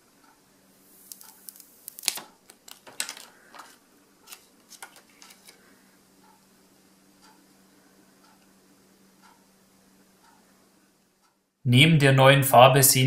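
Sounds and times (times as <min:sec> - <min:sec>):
plastic film peeling crackles: 0:01.0 - 0:05.6.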